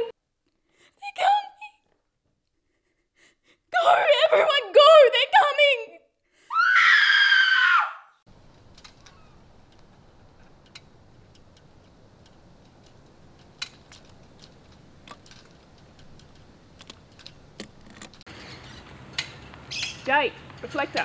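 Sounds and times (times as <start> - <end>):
low steady outdoor hiss: 8.3 - 21.0.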